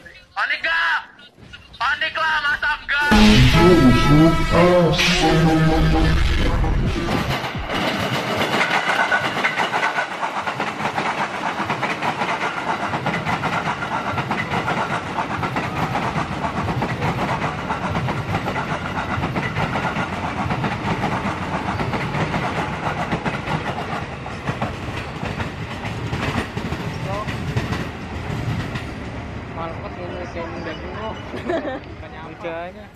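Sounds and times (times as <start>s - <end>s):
train wheels clattering over rails: 7.1s - 29.4s.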